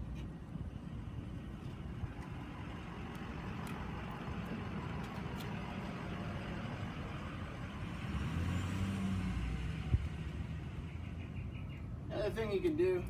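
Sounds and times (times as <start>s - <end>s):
motor vehicle rumbling: 0.0s - 13.0s.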